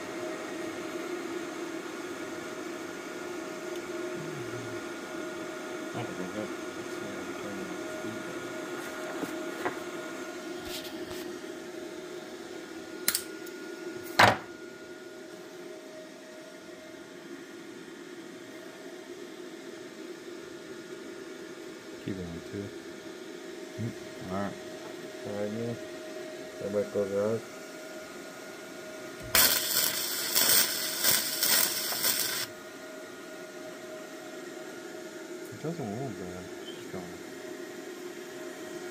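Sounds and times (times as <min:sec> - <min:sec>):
welder humming: 0:00.0 - 0:17.2, 0:23.7 - 0:34.7
welding arc crackling: 0:29.2 - 0:32.5.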